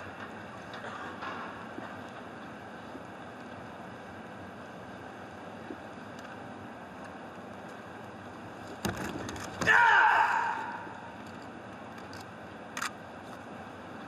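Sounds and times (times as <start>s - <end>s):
person shouting: 9.6s - 11.2s.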